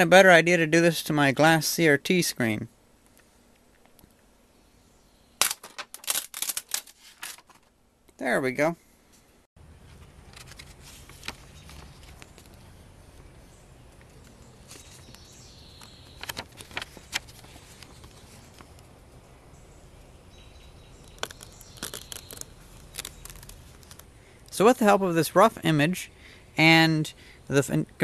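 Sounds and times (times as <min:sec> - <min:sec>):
paper clicks and rustles: 0:05.4 - 0:07.7, 0:09.9 - 0:12.7, 0:14.0 - 0:18.9, 0:21.0 - 0:24.1.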